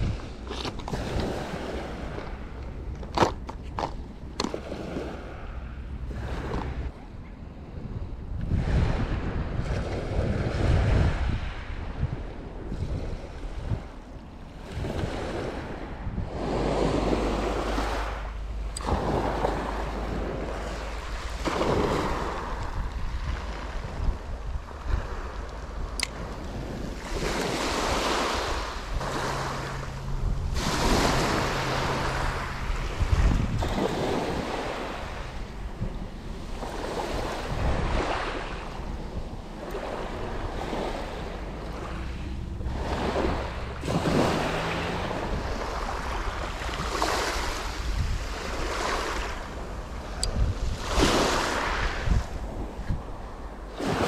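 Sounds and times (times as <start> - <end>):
sea waves washing on shore: 0.0 - 54.0
wind on microphone: 0.0 - 54.0
waves breaking on shingle: 18.8 - 23.7.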